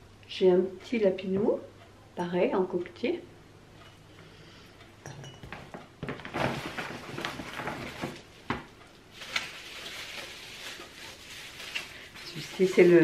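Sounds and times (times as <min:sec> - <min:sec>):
bubble wrap crinkling: 0:06.0 - 0:13.0.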